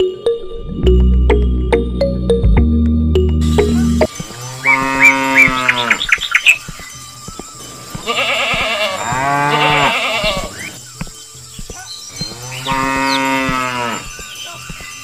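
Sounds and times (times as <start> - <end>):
cow mooing: 4.6 - 6.1, 8.1 - 10.6, 12.5 - 14.1
sheep bleating: 8.0 - 10.7.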